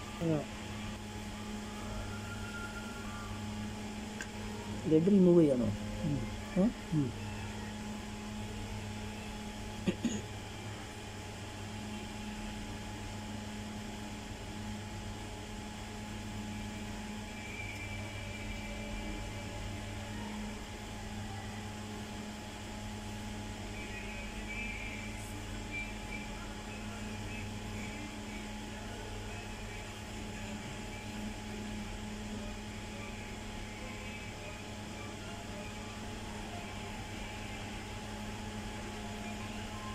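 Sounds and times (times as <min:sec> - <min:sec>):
low electrical hum with fan whir: 0:00.0 - 0:39.9.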